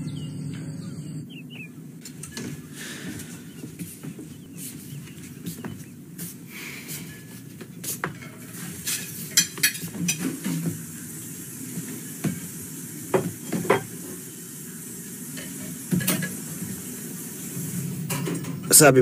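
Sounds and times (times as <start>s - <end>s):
dishes and utensils clinking: 6.9s - 10.9s, 13.1s - 14.1s, 15.3s - 16.6s, 18.1s - 18.7s.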